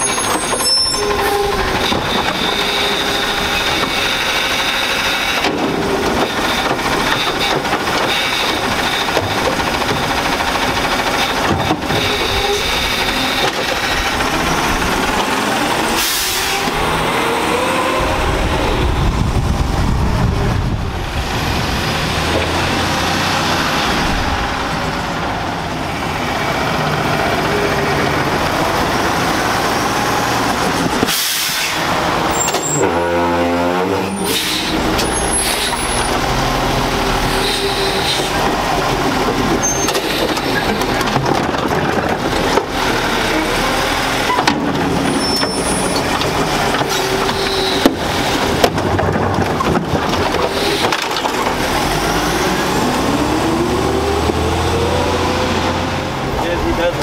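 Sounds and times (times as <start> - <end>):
truck rumbling past: 0.0 - 41.2, 42.1 - 57.0
diesel engine running: 0.0 - 57.0
hydraulics working: 0.0 - 57.0
air brake hisses: 31.1 - 31.8, 34.2 - 34.8.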